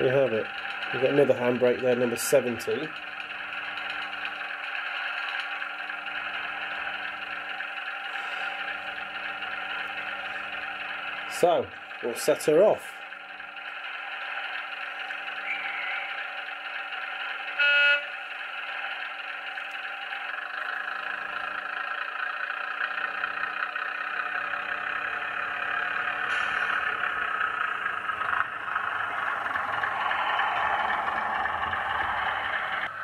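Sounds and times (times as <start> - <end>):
model train diesel engine: 0.0 - 33.0
model train rumbling on track: 0.0 - 33.0
train horn blast: 17.5 - 18.2.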